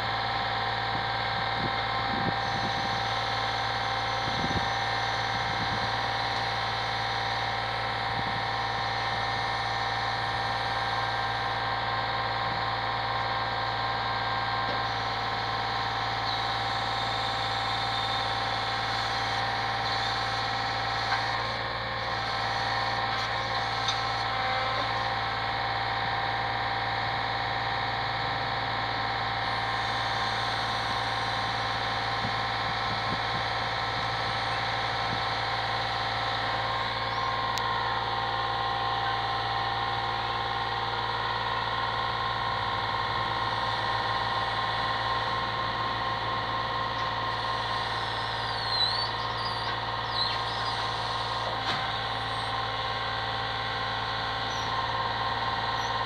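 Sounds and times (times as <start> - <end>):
diesel engine droning: 0.0 - 56.0
hydraulic crane whine: 0.0 - 56.0.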